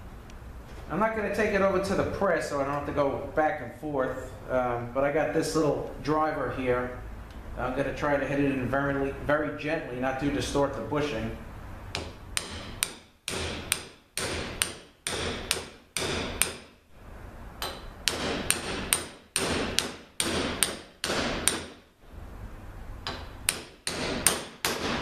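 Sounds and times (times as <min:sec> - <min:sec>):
small hammer tapping metal: 0:11.9 - 0:16.7, 0:17.6 - 0:21.8, 0:23.0 - 0:25.0.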